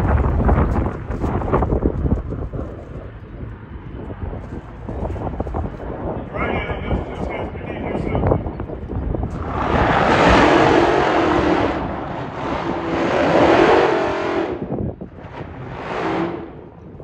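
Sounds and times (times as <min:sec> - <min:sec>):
loud rushing noise: 0:09.0 - 0:16.7
car engine revving high: 0:09.3 - 0:16.7.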